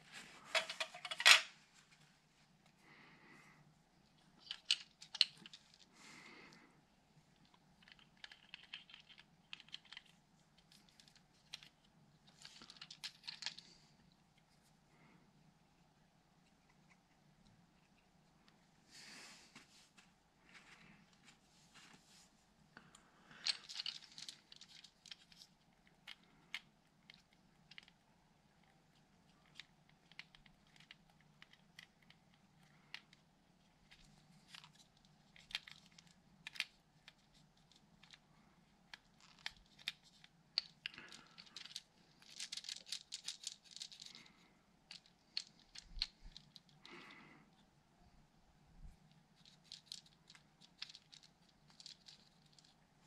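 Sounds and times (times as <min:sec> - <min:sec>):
faint low hum: 0:00.0 - 0:53.0
hands handling small parts: 0:00.2 - 0:02.0, 0:04.0 - 0:06.3, 0:07.2 - 0:14.8, 0:22.9 - 0:47.8, 0:48.8 - 0:53.0.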